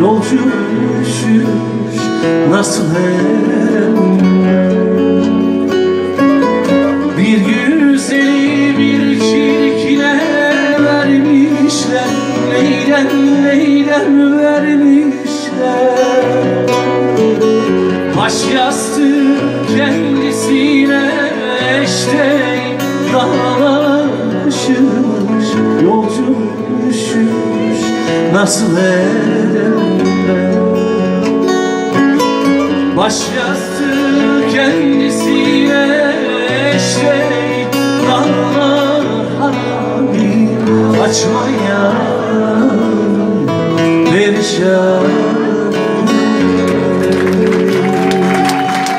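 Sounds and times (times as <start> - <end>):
man singing: 0.0 - 48.9
strummed acoustic guitar: 0.0 - 48.9.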